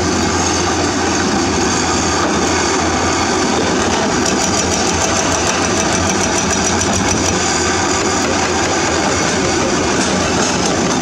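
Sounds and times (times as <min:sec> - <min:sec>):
excavator diesel engine running: 0:00.0 - 0:11.0.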